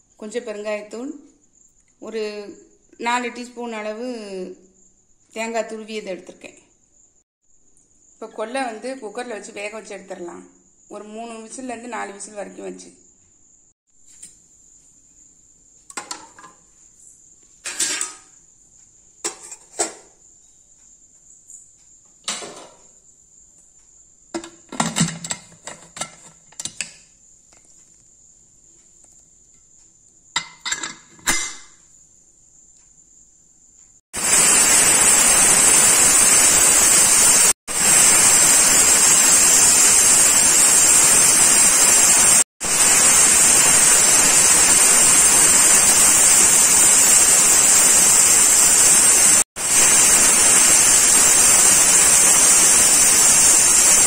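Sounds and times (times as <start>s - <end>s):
pressure cooker knocks and clicks: 24.4s - 26.9s
pressure cooker steam whistle: 34.2s - 54.0s.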